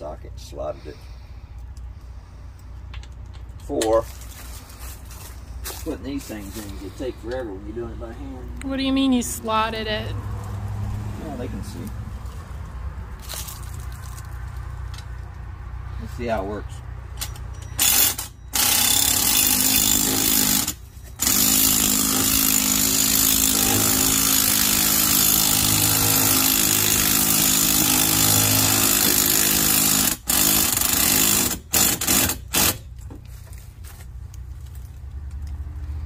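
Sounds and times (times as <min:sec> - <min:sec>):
cordless impact driver hammering: 0:17.8 - 0:32.8.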